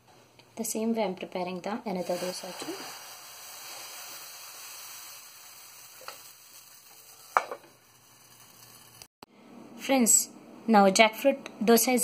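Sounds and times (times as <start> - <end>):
batter sizzling on a pan: 1.9 - 9.1.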